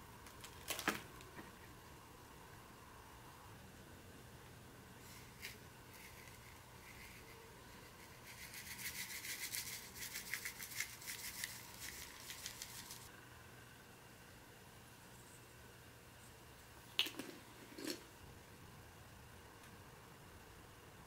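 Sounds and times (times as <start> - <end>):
salt shaker rattling: 8.2 - 13.1.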